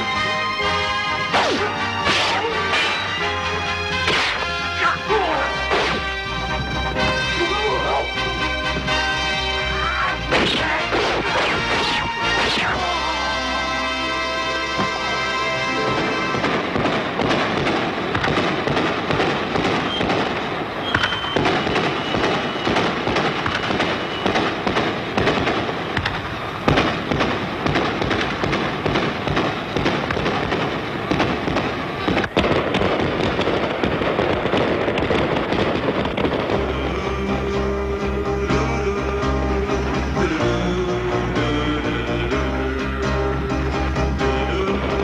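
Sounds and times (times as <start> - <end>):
music: 0.0 - 17.6, 36.2 - 45.0
fireworks crackling and popping: 0.0 - 37.7.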